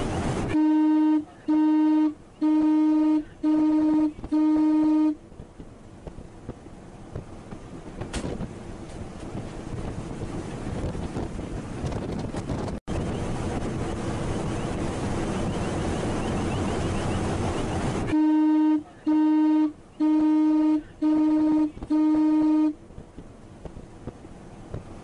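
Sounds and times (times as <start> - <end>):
ship's horn blasts: 0.0 - 5.3, 16.8 - 23.0
rushing water: 0.0 - 11.9, 12.9 - 25.0
wind on microphone: 5.3 - 18.2, 20.9 - 22.2.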